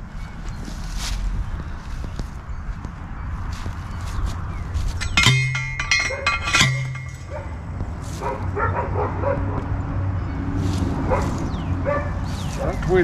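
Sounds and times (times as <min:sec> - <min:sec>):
metal fence post clanks: 0:04.9 - 0:07.7
dog barking: 0:08.2 - 0:09.6, 0:11.1 - 0:12.8.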